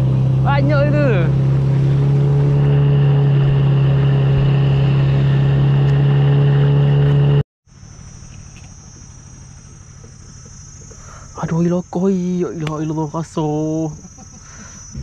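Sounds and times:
outboard motor running: 0:00.0 - 0:11.7, 0:13.8 - 0:15.0
insects droning: 0:07.7 - 0:15.0.

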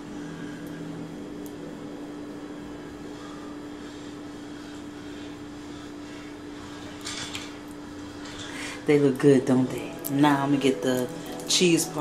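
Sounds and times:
fan humming with pitched tone: 0:00.0 - 0:12.0.

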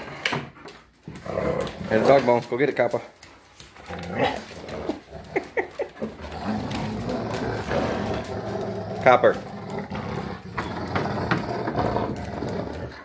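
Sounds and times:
dog growling: 0:01.1 - 0:02.5, 0:03.8 - 0:13.0.

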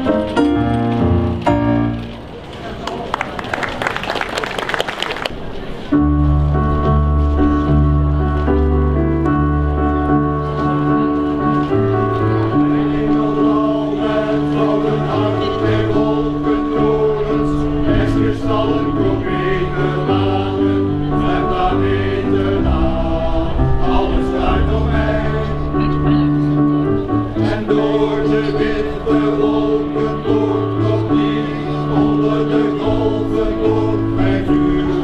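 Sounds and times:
vocal group singing: 0:12.4 - 0:26.0, 0:27.2 - 0:35.0.

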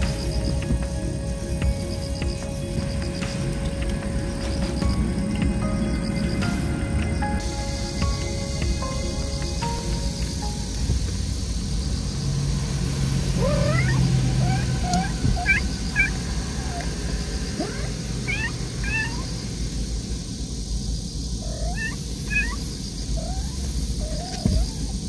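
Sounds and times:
cat meowing: 0:13.4 - 0:16.9, 0:17.6 - 0:19.3, 0:21.4 - 0:24.9.

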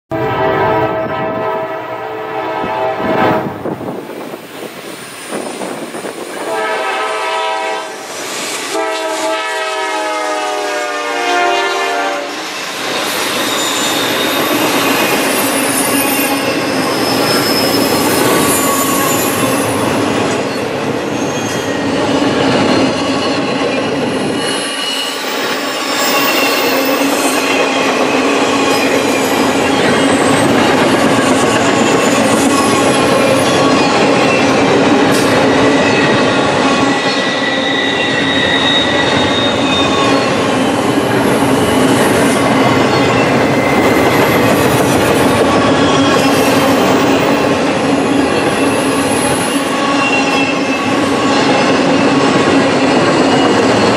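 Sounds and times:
locomotive horn blasts: 0:00.1 - 0:03.5, 0:06.4 - 0:08.0, 0:08.7 - 0:12.4
train cars rushing past: 0:00.1 - 0:53.9
wheel squeal: 0:12.5 - 0:53.9.

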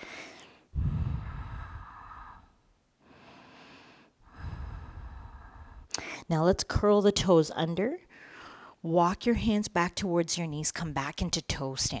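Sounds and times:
woman breathing deeply: 0:00.0 - 0:06.3, 0:08.1 - 0:08.8.

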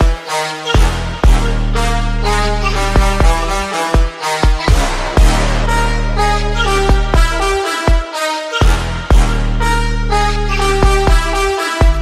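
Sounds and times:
deep bass drum hits: 0:04.7 - 0:06.2, 0:06.9 - 0:07.4.

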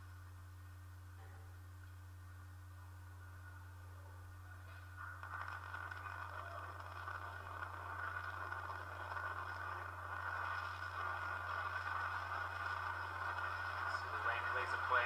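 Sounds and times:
low electrical hum: 0:00.0 - 0:15.0
rocket engine roaring: 0:05.2 - 0:15.0.

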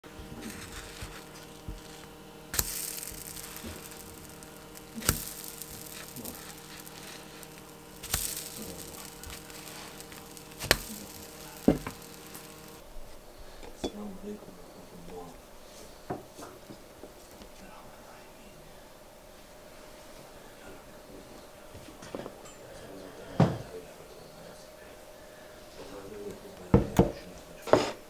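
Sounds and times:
steady hum: 0:00.0 - 0:27.6
pancakes sizzling in a frying pan: 0:00.1 - 0:12.8.

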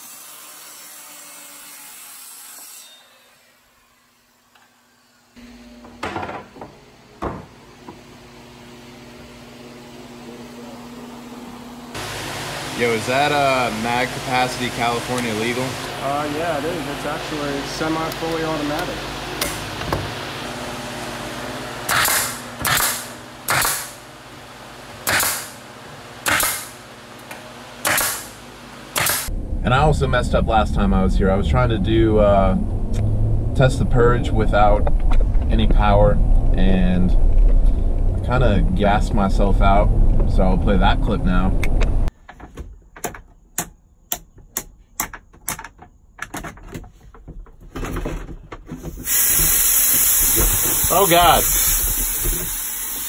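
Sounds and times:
nail gun firing into plywood: 0:21.9 - 0:24.0, 0:25.0 - 0:25.6, 0:26.2 - 0:26.8, 0:27.8 - 0:28.4, 0:29.0 - 0:29.3.

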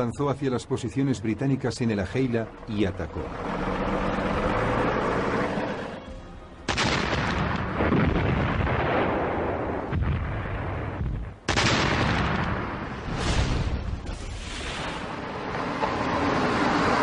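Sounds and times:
artillery explosions: 0:06.7 - 0:15.2.

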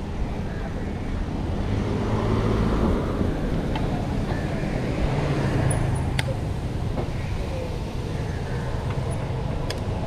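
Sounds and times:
road traffic rumble: 0:00.0 - 0:10.0.

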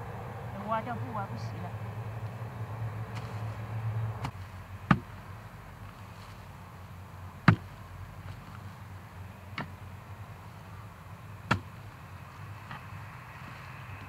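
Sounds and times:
hoe blade chopping into soil: 0:03.1 - 0:03.6, 0:07.4 - 0:08.6, 0:11.4 - 0:11.9.

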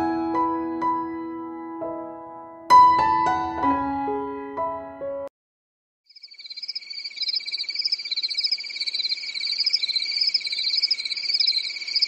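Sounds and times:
crickets trilling: 0:06.1 - 0:12.0
frogs chirping: 0:06.1 - 0:12.0.

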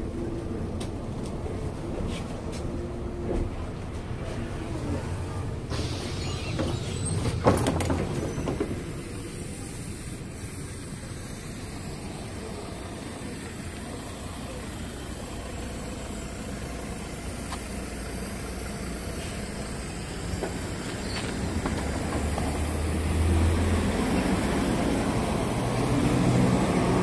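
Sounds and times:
bus rumbling: 0:00.0 - 0:27.0
compressed air hiss: 0:05.7 - 0:07.2, 0:08.7 - 0:23.9.

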